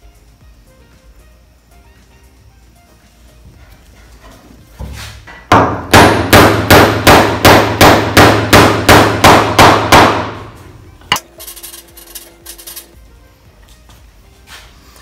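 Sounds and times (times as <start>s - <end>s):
hammer driving a wooden dowel: 5.3s - 10.5s.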